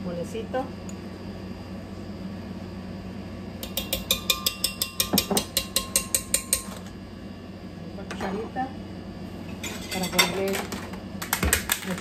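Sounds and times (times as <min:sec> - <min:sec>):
utensil tapping a jar rim: 0:03.6 - 0:06.7.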